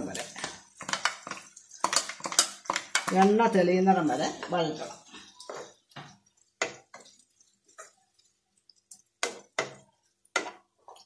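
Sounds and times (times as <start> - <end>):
wooden spoon scraping frying pan: 0.0 - 11.0.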